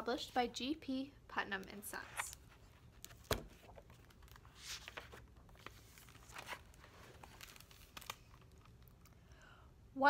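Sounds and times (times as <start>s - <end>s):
pages rustling: 1.9s - 9.2s.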